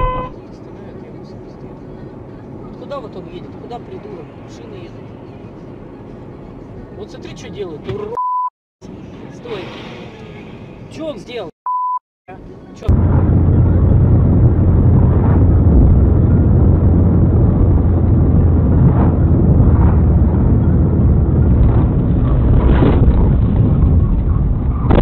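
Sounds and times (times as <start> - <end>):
road noise: 0.0 - 8.2, 8.8 - 11.5, 12.3 - 25.0
car engine: 12.4 - 25.0
wind noise: 12.9 - 25.0.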